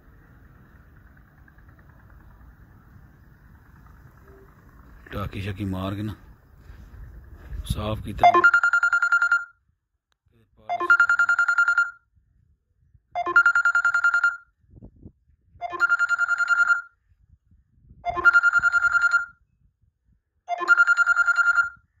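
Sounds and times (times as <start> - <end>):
electronic ringing tone trill: 4.2 - 4.8, 8.2 - 9.6, 10.7 - 12.0, 13.2 - 14.5, 15.6 - 17.0, 18.1 - 19.4, 20.5 - 22.0.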